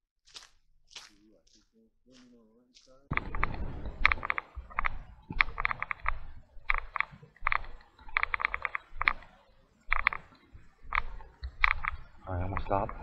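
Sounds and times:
footsteps on gravel: 0:00.3 - 0:06.9.

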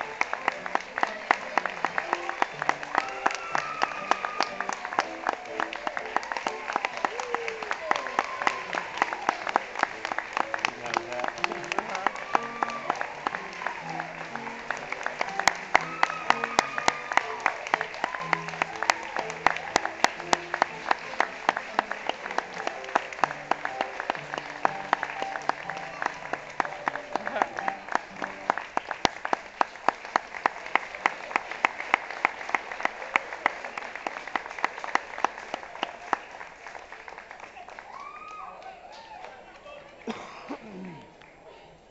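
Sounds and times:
curtain-call music: 0:00.0 - 0:29.8
loud sharp claps: 0:00.0 - 0:39.6
audience applause: 0:00.0 - 0:41.6.

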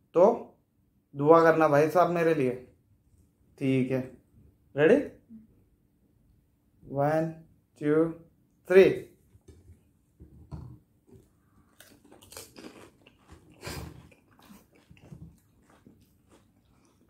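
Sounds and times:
crisp shells crunching: 0:11.7 - 0:17.0.

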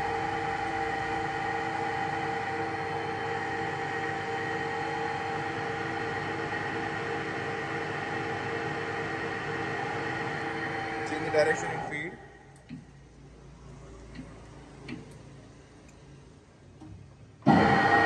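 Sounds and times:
lathe gear whine: 0:00.0 - 0:12.5, 0:17.4 - 0:18.0.

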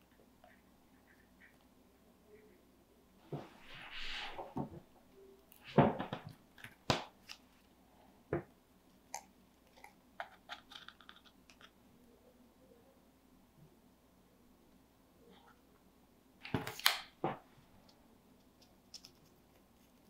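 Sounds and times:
crackly paper clicks: 0:09.7 - 0:11.8, 0:17.8 - 0:20.0.

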